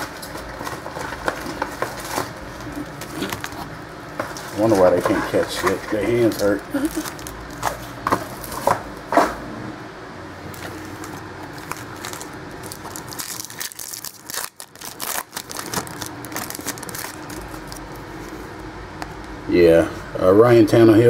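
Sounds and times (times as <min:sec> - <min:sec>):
trading cards flipping and rustling: 0:10.5 - 0:18.4.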